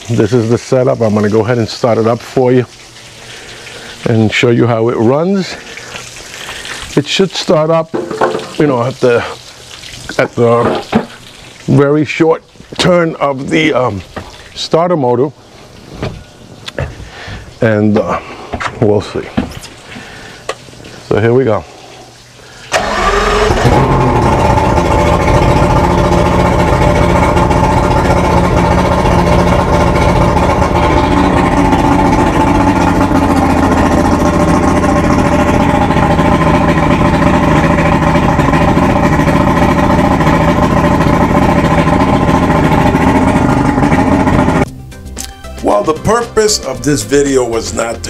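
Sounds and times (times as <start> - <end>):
outboard motor idling: 0.0 - 9.5, 22.7 - 44.7
outboard motor starter: 22.7 - 44.7.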